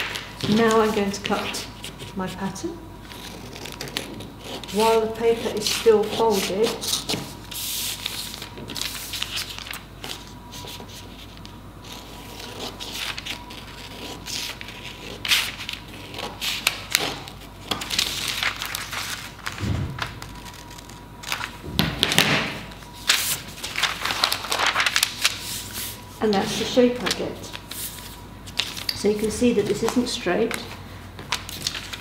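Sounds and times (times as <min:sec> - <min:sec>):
paper rustling and scraping: 0:03.1 - 0:30.7, 0:31.3 - 0:32.0
low thuds: 0:19.6 - 0:20.4.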